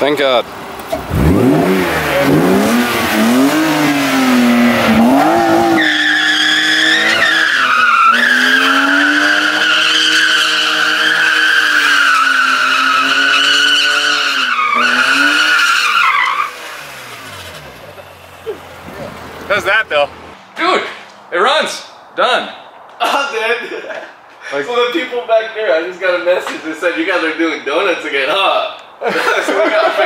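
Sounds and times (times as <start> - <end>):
car engine revving hard: 1.0 - 19.3
tyres squealing: 2.1 - 20.3.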